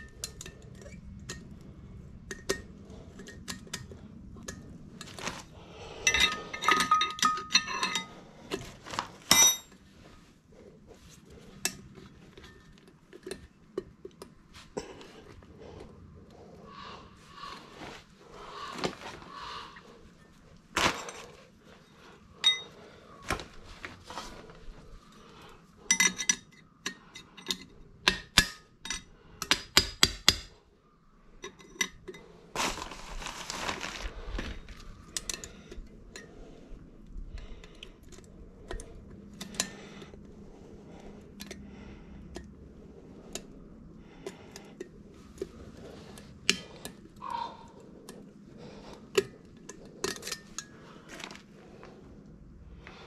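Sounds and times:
metal tools clinking and knocking: 0.0s - 1.6s, 6.0s - 9.8s, 22.4s - 22.8s, 25.8s - 29.7s, 49.2s - 51.4s.

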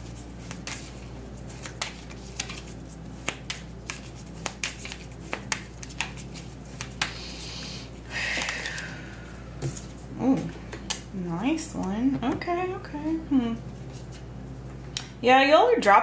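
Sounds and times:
cards being shuffled: 0.0s - 8.9s, 9.6s - 11.0s, 13.7s - 14.9s
cards rustling hiss: 0.0s - 11.1s, 13.6s - 15.0s.

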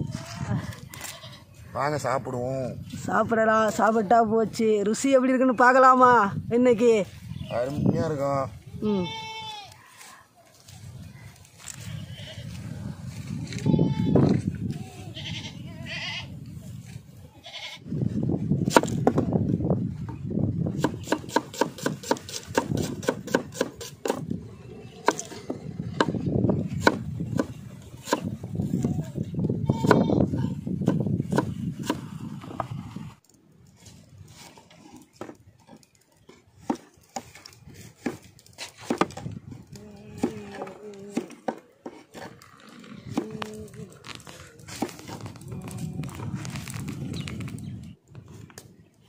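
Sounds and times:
blade slicing shallots on wood: 20.8s - 24.2s.

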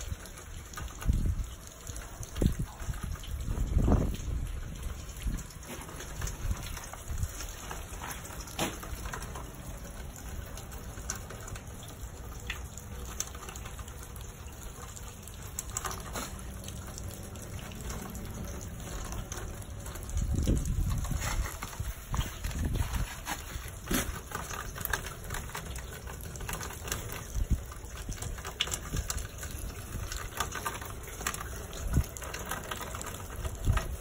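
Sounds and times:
wind rumble on microphone: 0.0s - 8.1s, 16.6s - 34.0s
rain pattering and ticking: 0.0s - 34.0s.

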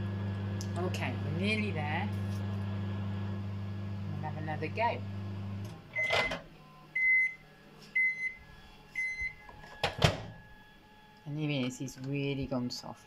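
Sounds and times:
microwave oven humming: 0.0s - 13.0s
high microwave beeps: 5.9s - 10.6s.

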